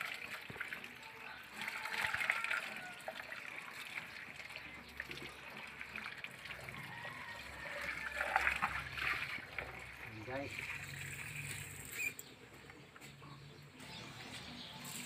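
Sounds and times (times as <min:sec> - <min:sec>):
tap water running and splashing: 0:00.0 - 0:12.2.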